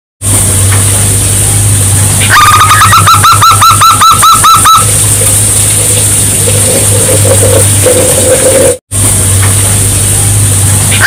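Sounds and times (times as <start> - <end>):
low hum and hiss: 0.2 - 11.0.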